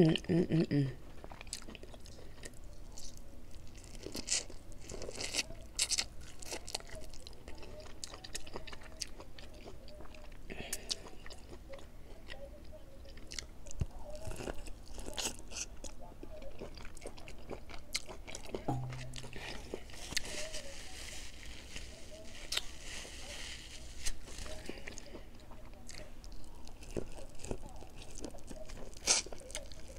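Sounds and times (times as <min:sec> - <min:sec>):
mouth chewing sounds: 0:01.1 - 0:20.7, 0:21.6 - 0:23.2, 0:23.8 - 0:29.9
corn kernels crunching: 0:01.2 - 0:11.5, 0:13.4 - 0:29.9.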